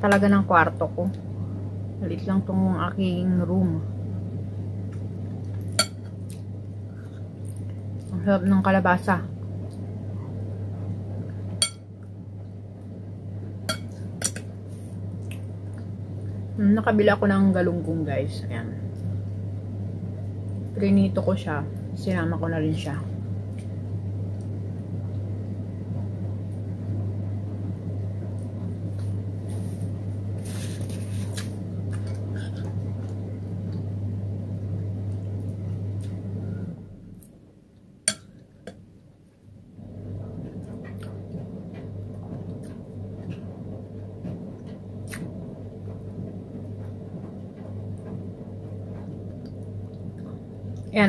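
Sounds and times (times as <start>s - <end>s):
low hum: 0.0s - 51.0s
spoon tapping a bowl: 11.6s - 11.8s.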